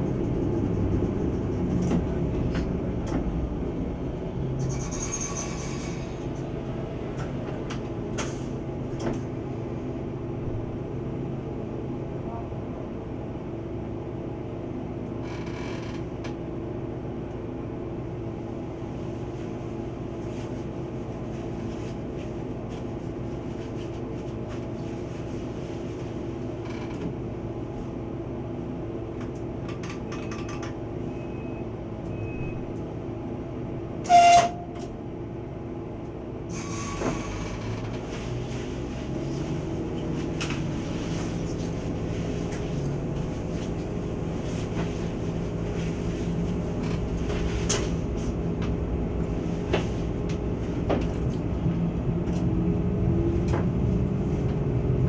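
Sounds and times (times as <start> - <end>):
diesel railcar engine hum: 0.0 - 55.0
short loud horn blast: 34.0 - 34.8.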